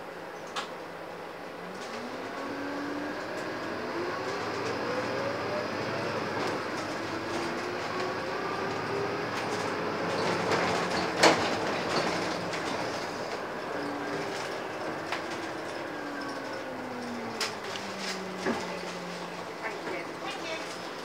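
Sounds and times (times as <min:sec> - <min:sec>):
bus engine accelerating: 0:00.0 - 0:21.0.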